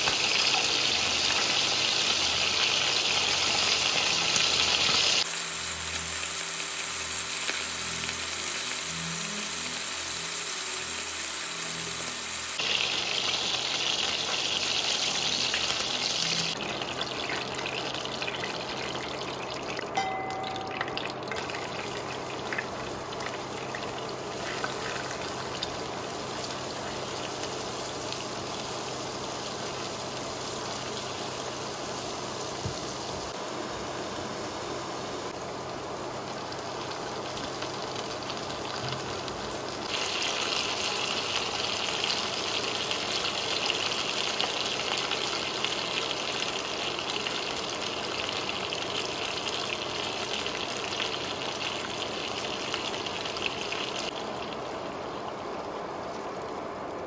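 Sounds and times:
hot oil sizzling in a pan: 0:00.0 - 0:56.8.

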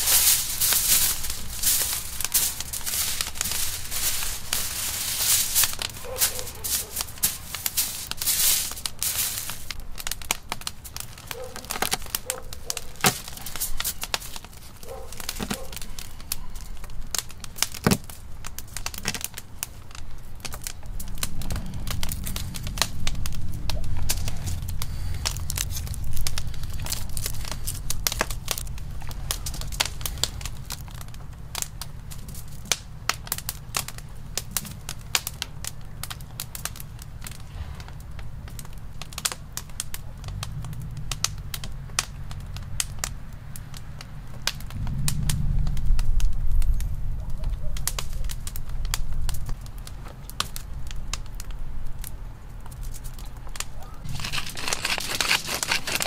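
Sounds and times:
wood fire crackling: 0:00.0 - 0:56.0
low rumble: 0:20.8 - 0:31.4, 0:44.6 - 0:47.4.

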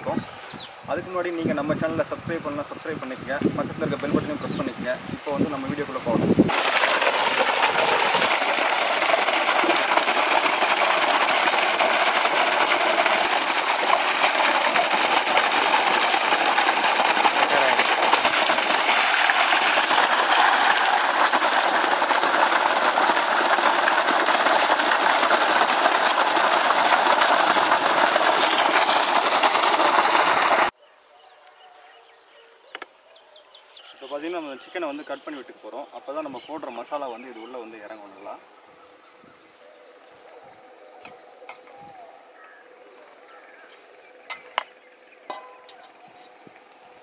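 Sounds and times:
water gushing from pipe: 0:05.3 - 0:30.7
water splashing into metal basin: 0:06.5 - 0:30.7, 0:45.3 - 0:45.8.

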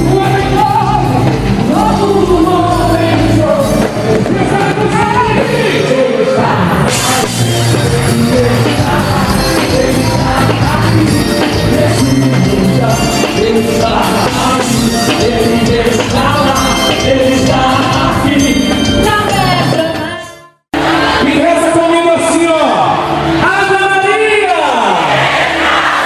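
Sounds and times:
person singing melody: 0:00.0 - 0:20.2
steady bass line: 0:00.0 - 0:21.6
live band worship song: 0:00.0 - 0:26.0.

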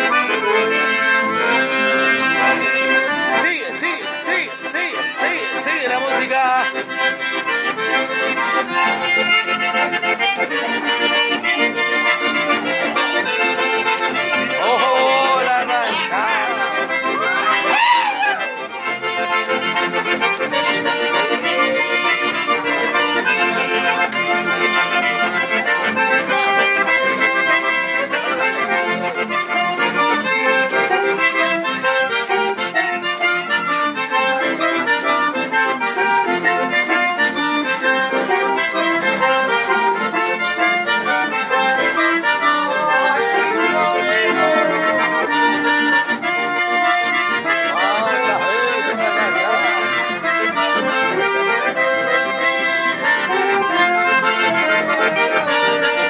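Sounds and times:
accordion playing quick notes: 0:00.0 - 0:56.0.

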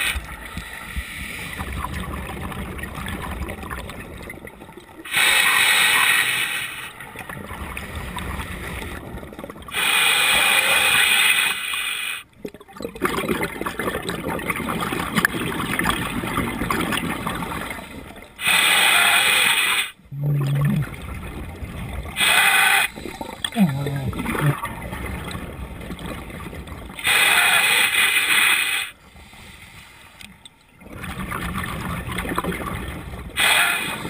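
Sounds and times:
quiet underwater crackling bubbling: 0:00.0 - 0:34.0
regulator air bubbles rushing: 0:12.4 - 0:18.2, 0:20.0 - 0:27.1, 0:30.8 - 0:34.0.

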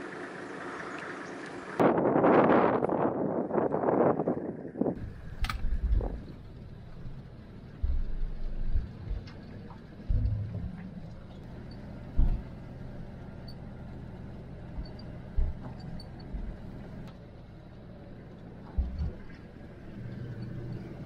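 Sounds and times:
vehicle engine and road rumble: 0:00.0 - 0:21.0
short low thumps: 0:07.7 - 0:11.3, 0:12.1 - 0:12.6, 0:14.7 - 0:16.6.

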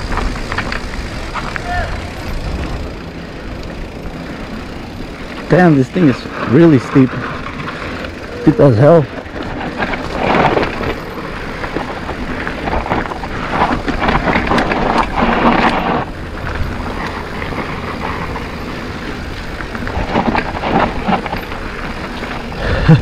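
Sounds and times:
tyres crunching over dirt: 0:00.0 - 0:23.0
wind rushing over microphone: 0:05.0 - 0:23.0.

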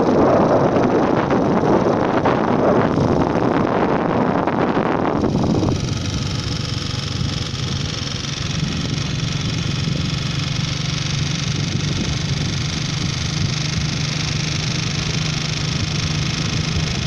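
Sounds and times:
tyre and wind noise: 0:00.0 - 0:06.5
vehicle engine hum: 0:00.0 - 0:17.0.

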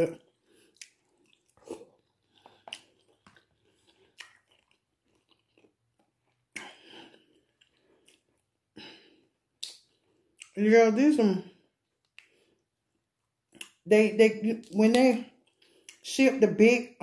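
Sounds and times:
person chewing crab legs: 0:00.2 - 0:08.7, 0:15.3 - 0:16.0.

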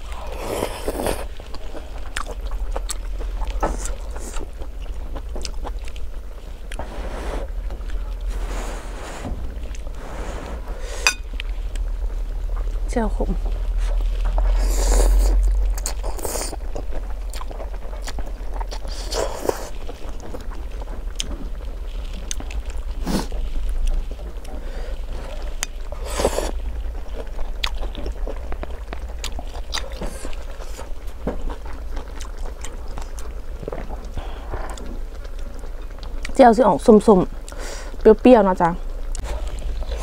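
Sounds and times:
chewing: 0:00.0 - 0:38.1, 0:38.8 - 0:40.0
steady low hum: 0:00.0 - 0:40.0
person slurping noodles: 0:00.2 - 0:01.4, 0:14.6 - 0:16.6, 0:26.0 - 0:26.6.

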